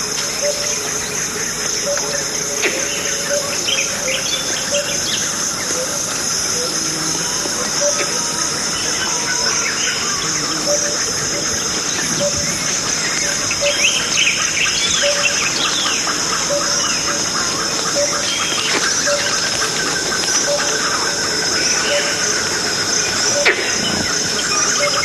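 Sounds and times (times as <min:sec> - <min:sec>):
high insect drone: 0:00.0 - 0:25.0
birds calling: 0:00.3 - 0:25.0.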